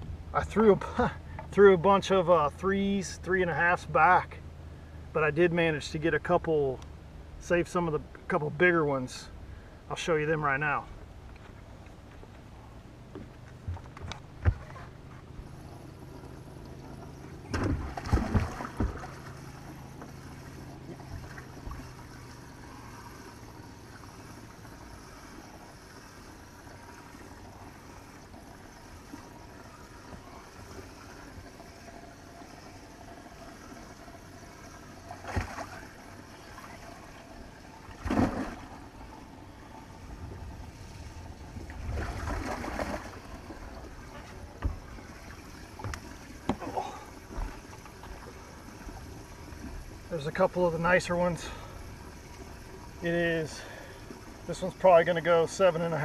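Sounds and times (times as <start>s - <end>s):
steady low hum: 0.0s - 56.0s
water splashing and sloshing: 10.6s - 56.0s
knocks and thumps against boat: 13.1s - 15.3s, 16.3s - 20.2s, 41.5s - 48.2s.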